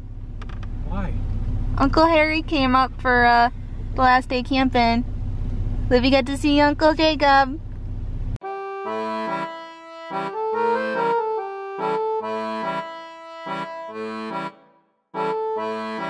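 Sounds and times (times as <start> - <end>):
sustained chords playing: 8.4 - 16.0.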